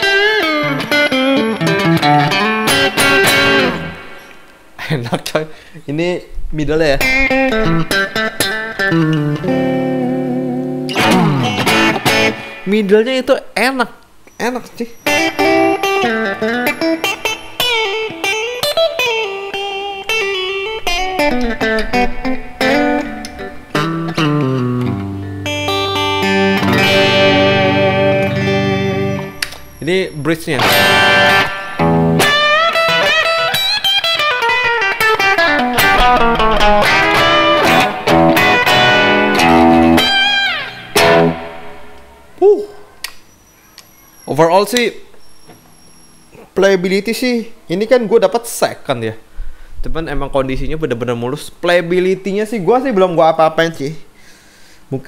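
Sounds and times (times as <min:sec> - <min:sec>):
overdriven electric guitar lead: 0:00.0 - 0:04.6, 0:07.0 - 0:12.7, 0:15.1 - 0:29.9, 0:30.6 - 0:42.3.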